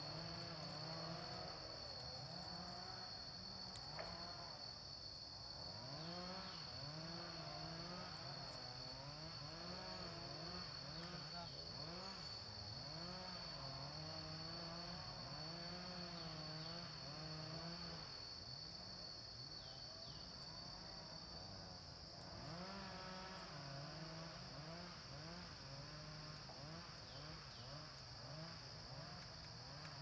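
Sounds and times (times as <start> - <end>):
insects droning high-pitched: 0.0 - 30.0.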